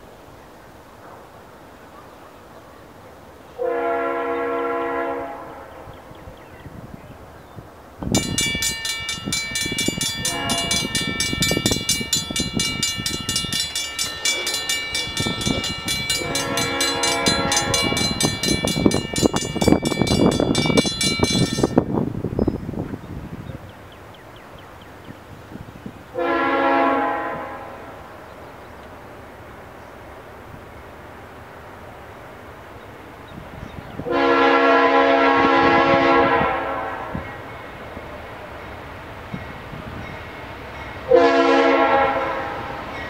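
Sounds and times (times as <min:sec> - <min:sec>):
train rumbling: 0:03.5 - 0:43.0
locomotive air horn: 0:03.6 - 0:05.9, 0:10.2 - 0:11.0, 0:16.1 - 0:18.4, 0:26.2 - 0:28.0, 0:34.1 - 0:37.4, 0:41.1 - 0:42.8
crossing warning bell ringing: 0:08.1 - 0:22.1, 0:39.3 - 0:43.0.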